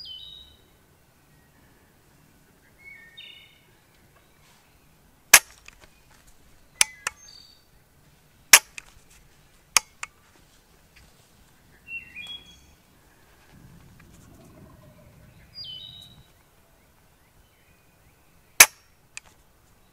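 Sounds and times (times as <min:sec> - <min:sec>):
bird calling: 0:02.6 - 0:07.7, 0:11.0 - 0:19.3
shotgun firing pin clicks: 0:05.3 - 0:05.9, 0:06.8 - 0:07.2, 0:08.5 - 0:09.0, 0:09.7 - 0:10.1, 0:18.6 - 0:19.4.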